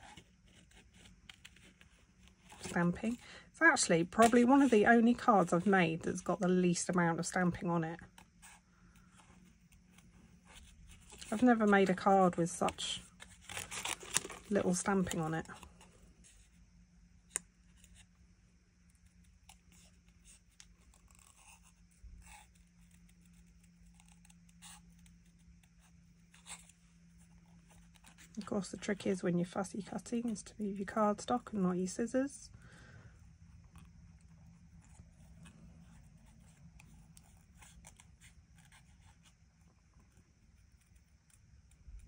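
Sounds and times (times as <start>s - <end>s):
card rustling: 0.0s - 16.6s.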